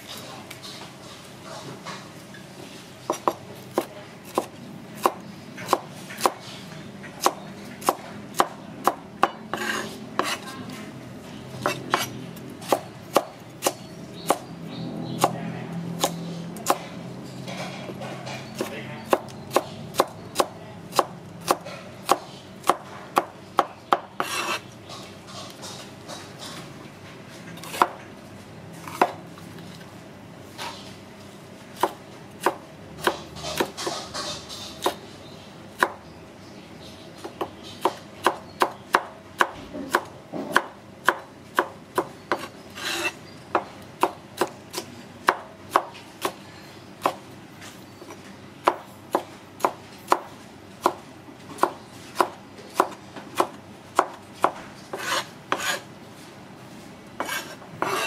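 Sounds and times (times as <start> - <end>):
knife chopping on cutting board: 7.2 - 10.4, 31.8 - 35.0, 51.6 - 55.8, 57.2 - 58.0.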